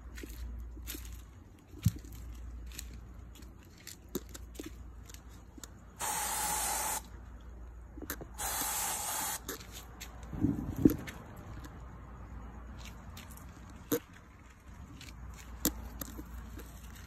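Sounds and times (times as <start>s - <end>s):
small scuffs and clicks: 0.0s - 6.0s, 7.0s - 17.0s
aerosol can spraying: 6.0s - 7.0s, 8.4s - 9.5s.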